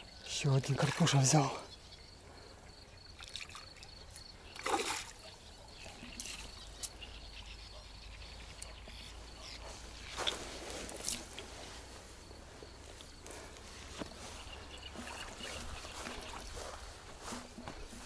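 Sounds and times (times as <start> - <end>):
fish splashing at the surface: 4.6 - 5.2.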